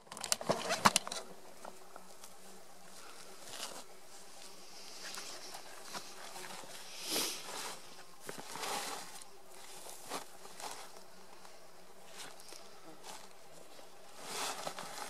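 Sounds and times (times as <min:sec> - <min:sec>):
fabric bag rustling and swishing: 0:14.1 - 0:15.0.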